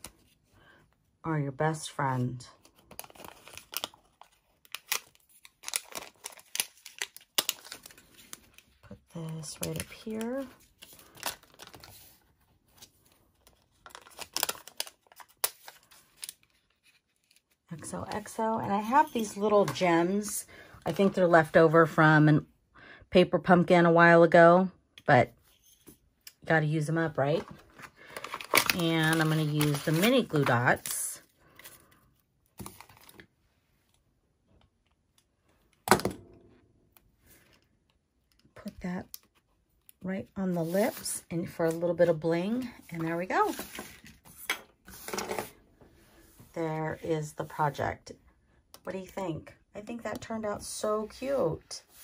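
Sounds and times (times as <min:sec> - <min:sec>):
plastic liner crinkling: 0:02.6 - 0:18.4, 0:27.4 - 0:32.0.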